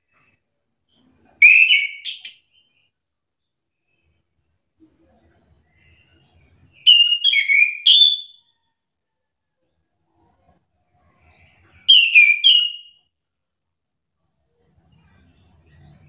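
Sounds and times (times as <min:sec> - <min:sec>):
thrush singing whistled notes: 0:01.4 - 0:02.8, 0:06.8 - 0:08.5, 0:11.8 - 0:13.1.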